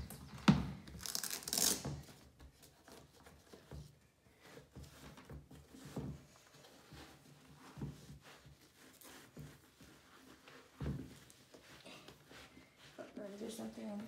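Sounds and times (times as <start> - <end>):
shoe rustling and tapping: 0.0 - 14.0
velcro strap ripping open: 1.0 - 1.9.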